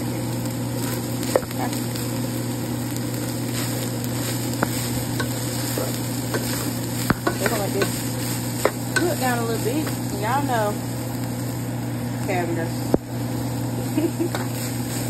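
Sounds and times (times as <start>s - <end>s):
meat sizzling in a pan: 0.0s - 15.0s
utensil clicking against pan: 4.6s - 5.5s, 6.3s - 9.2s, 14.3s - 14.6s.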